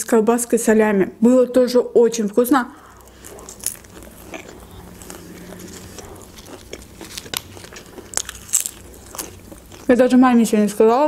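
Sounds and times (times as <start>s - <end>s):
close chewing with mouth clicks: 2.8s - 10.0s.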